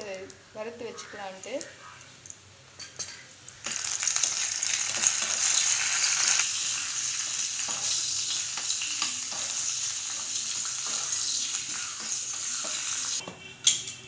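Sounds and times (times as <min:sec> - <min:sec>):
berries sizzling in hot oil: 0:03.1 - 0:13.2.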